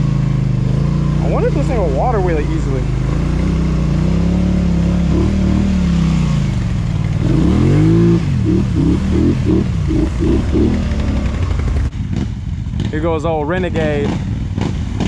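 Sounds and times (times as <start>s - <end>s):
atv engine revving: 0.0s - 15.0s
wading through muddy water: 1.1s - 5.4s.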